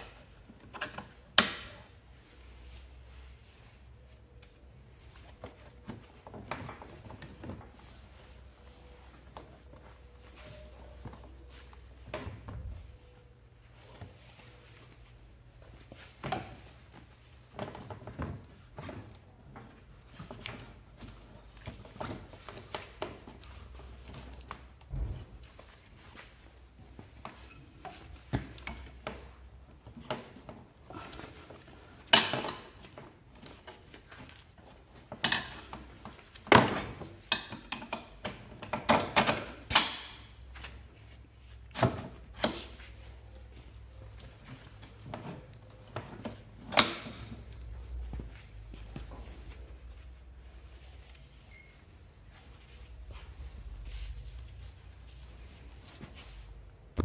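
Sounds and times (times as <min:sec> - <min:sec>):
tools clinking and knocking: 0:37.2 - 0:40.3.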